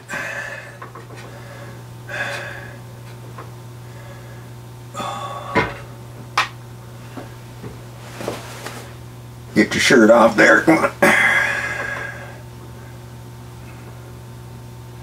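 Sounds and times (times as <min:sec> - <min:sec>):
steady low hum: 0:00.0 - 0:15.0
soft rustle: 0:08.0 - 0:09.0.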